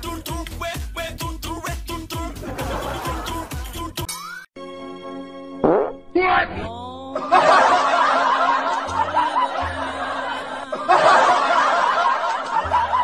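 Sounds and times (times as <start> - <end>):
group snickering and chuckling: 2.4 - 3.9, 7.2 - 13.0.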